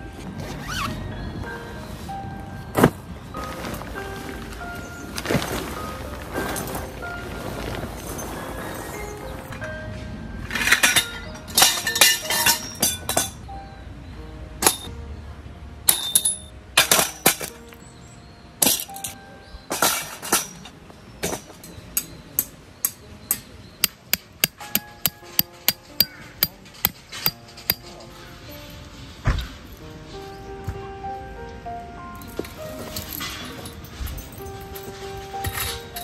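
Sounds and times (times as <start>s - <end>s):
soft background music: 0.0s - 36.0s
sharp knocks and clinks: 18.6s - 28.3s.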